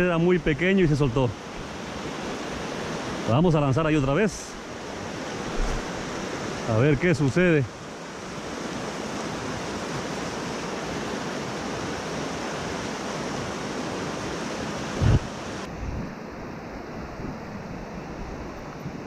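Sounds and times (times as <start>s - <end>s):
river rapids roaring: 0.3s - 19.0s
low thump: 5.5s - 5.9s.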